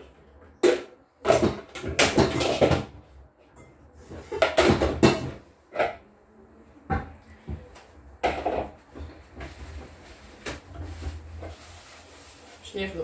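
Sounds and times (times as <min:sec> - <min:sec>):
dishes knocking and clattering: 0:00.0 - 0:06.0, 0:06.9 - 0:09.6.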